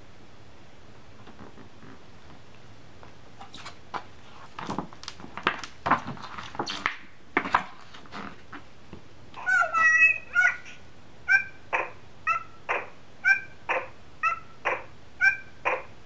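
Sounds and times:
paper pages rustling and crackling: 0:03.5 - 0:08.7.

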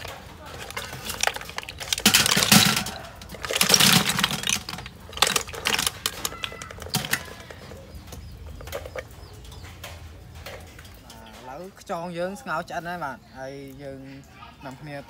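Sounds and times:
shells clattering on metal tray: 0:00.0 - 0:09.2.

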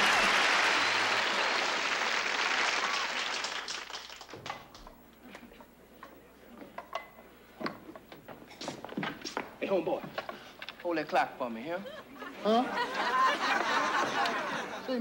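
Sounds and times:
audience applause: 0:00.0 - 0:04.8.

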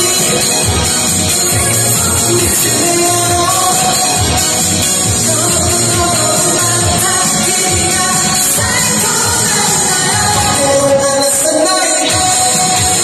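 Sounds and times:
pop backing track: 0:00.0 - 0:13.0
group singing into microphones: 0:01.5 - 0:13.0.

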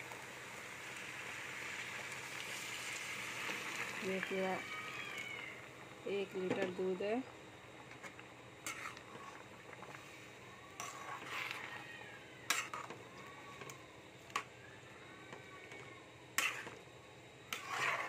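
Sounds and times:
faint high rising-and-falling cries: 0:04.2 - 0:05.7, 0:10.3 - 0:16.3.

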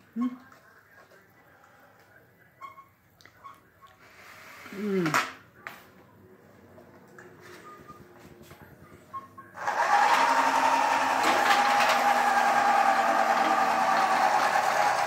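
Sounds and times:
model helicopter rotors whirring: 0:09.6 - 0:15.0.

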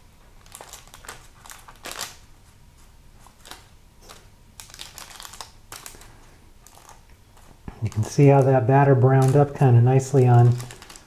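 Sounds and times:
paper crinkling: 0:00.4 - 0:11.0.

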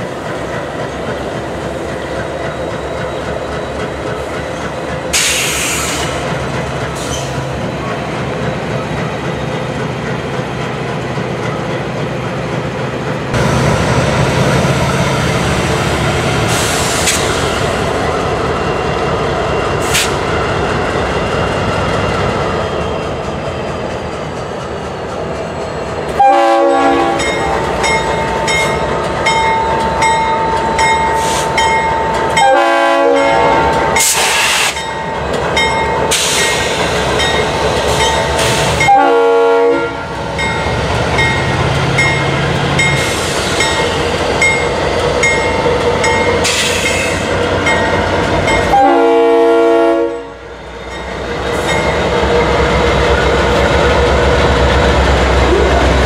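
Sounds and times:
train rumbling and rattling: 0:00.0 - 0:56.0
locomotive air horn blasts: 0:26.2 - 0:27.3, 0:32.4 - 0:34.7, 0:38.8 - 0:40.0, 0:48.7 - 0:50.4.

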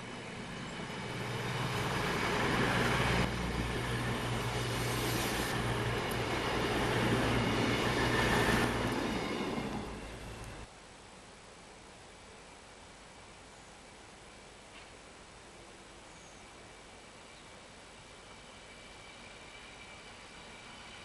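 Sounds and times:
train running hum: 0:00.0 - 0:10.7, 0:17.9 - 0:21.0
train wheels rumbling on rail: 0:00.0 - 0:10.7.

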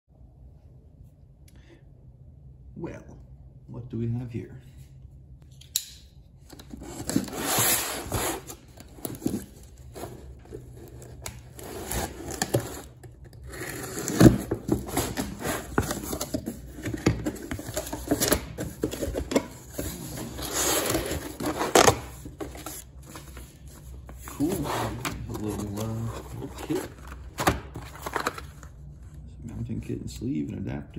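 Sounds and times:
packing tape cut and torn: 0:10.8 - 0:19.4.

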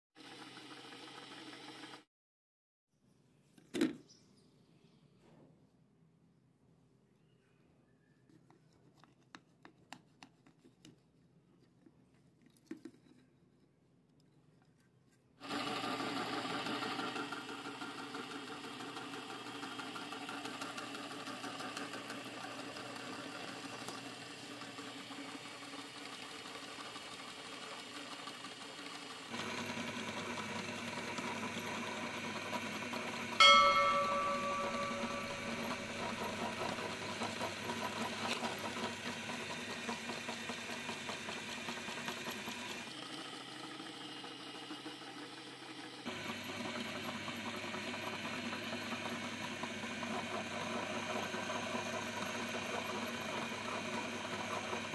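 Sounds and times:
meat grinder motor running: 0:00.2 - 0:02.1, 0:15.4 - 0:33.4, 0:34.0 - 0:54.9
sharp ringing strike: 0:33.4 - 0:35.9.

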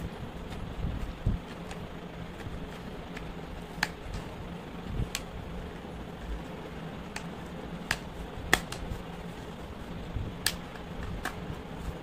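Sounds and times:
sharp plastic clicks: 0:01.3 - 0:04.4, 0:07.0 - 0:09.0, 0:10.4 - 0:11.5.

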